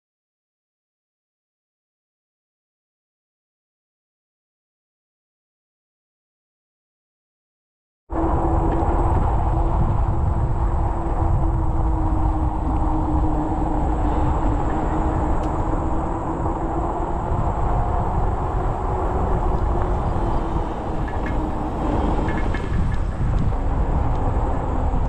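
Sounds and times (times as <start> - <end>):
wind rushing over microphone: 8.1 - 25.0
e-bike motor hum: 8.2 - 25.0.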